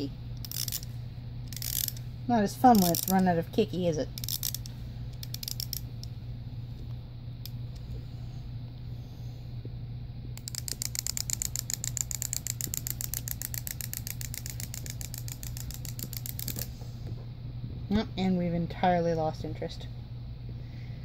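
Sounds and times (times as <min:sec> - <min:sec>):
clockwork toy clicking: 0:00.4 - 0:00.9, 0:01.5 - 0:02.0, 0:02.7 - 0:03.3, 0:04.2 - 0:05.8, 0:10.4 - 0:16.7.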